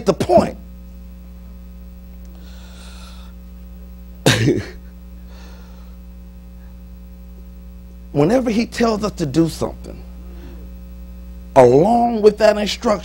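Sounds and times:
electrical hum: 0.0 - 13.0
faint breaths: 2.3 - 3.4, 5.2 - 6.8, 10.2 - 10.8.

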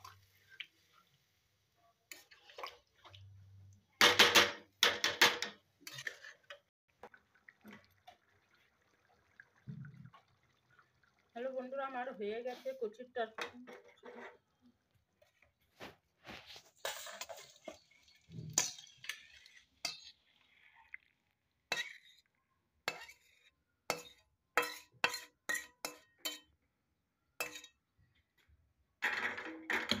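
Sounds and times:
metal spatula scraping wok: 5.8 - 6.7, 13.6 - 14.4, 16.5 - 18.0, 18.6 - 20.2, 21.7 - 22.3, 22.9 - 26.4.

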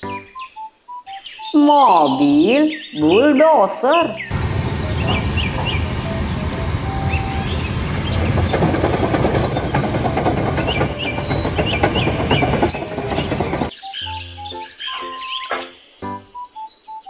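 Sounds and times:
bulldozer diesel engine idling: 4.3 - 13.7.

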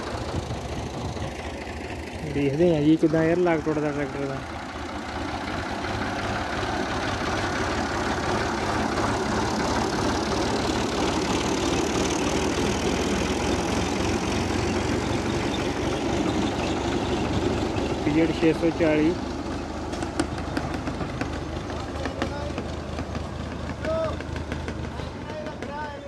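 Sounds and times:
tractor engine running under load: 0.0 - 26.0.

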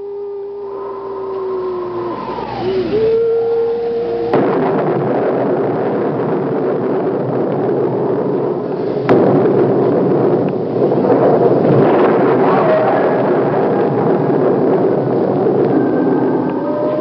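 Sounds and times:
steady held tone: 0.0 - 7.6
dense rough noise: 0.0 - 17.0
sharp crack: 4.2 - 17.0
sudden crash: 4.3 - 17.0.

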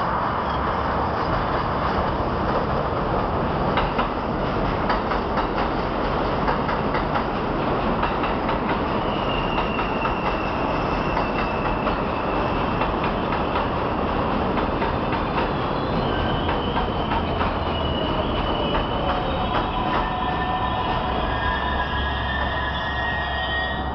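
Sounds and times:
train wheels rumbling on rails: 0.0 - 23.9
rail-joint clicks: 3.7 - 12.0, 14.4 - 15.6, 16.2 - 20.4
high wheel squeal: 8.9 - 13.0, 15.6 - 23.9.

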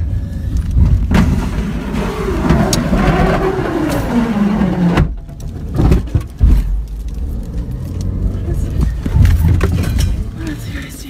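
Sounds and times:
car engine rumble inside cabin: 0.0 - 11.0.

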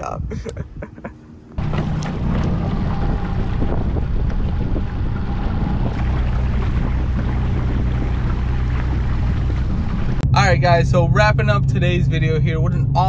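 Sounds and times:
wind on microphone: 0.0 - 10.3
boat motor hum: 1.0 - 13.0
water rushing along hull: 1.6 - 13.0.

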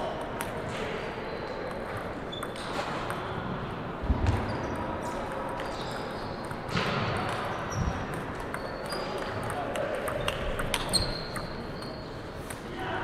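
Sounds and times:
table tennis ball bouncing: 1.6 - 3.3, 4.1 - 12.6.

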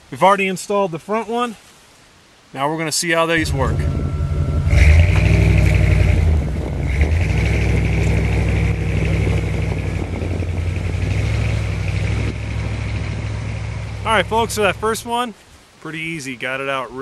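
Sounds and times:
truck engine running under load: 3.4 - 15.0.

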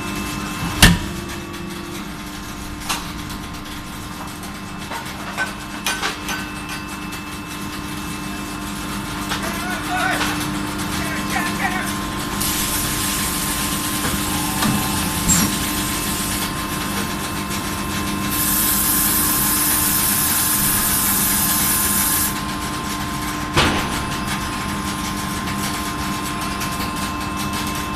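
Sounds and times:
machinery hum: 10.6 - 26.2
loud hiss: 12.4 - 16.6
forging hammer blow: 12.6 - 16.8.

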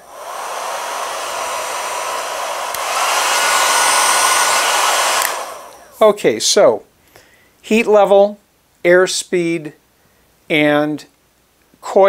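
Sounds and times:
hair dryer fan blowing: 0.0 - 6.2
hair dryer switch click: 0.1 - 6.0.

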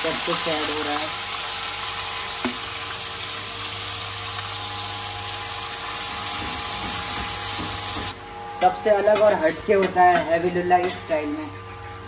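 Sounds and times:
food sizzling in hot oil: 0.0 - 8.2.

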